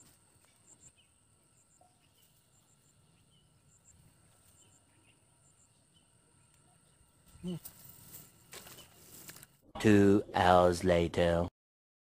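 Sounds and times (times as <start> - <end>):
faint insects chirping: 0.0 - 9.6.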